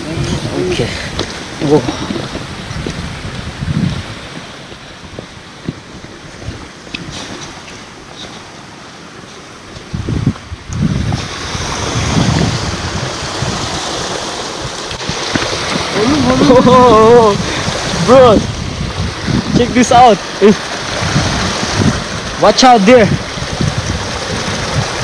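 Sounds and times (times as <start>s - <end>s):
wind buffeting microphone: 0.0s - 25.0s
footsteps on rocky path: 1.1s - 8.6s.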